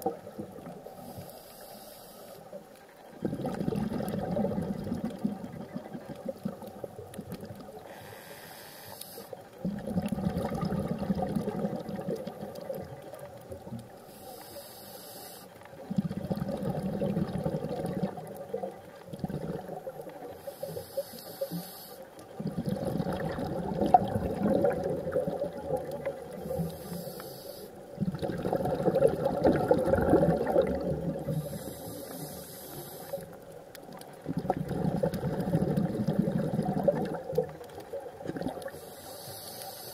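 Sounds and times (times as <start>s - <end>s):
regulator inhale hiss: 0.9s - 2.6s, 7.8s - 9.5s, 14.0s - 15.7s, 20.2s - 22.3s, 26.3s - 28.0s, 31.2s - 33.4s, 38.6s - 39.9s
exhaled bubbles rushing: 3.2s - 7.7s, 9.6s - 13.8s, 15.8s - 20.4s, 22.4s - 26.8s, 28.0s - 31.7s, 33.9s - 38.8s.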